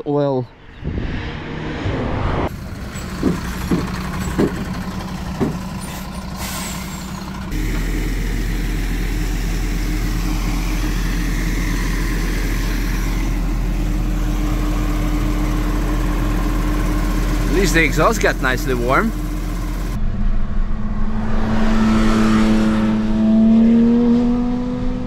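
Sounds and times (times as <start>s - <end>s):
tow truck engine running: 2.5s - 20.0s
short knocks: 3.2s - 4.7s.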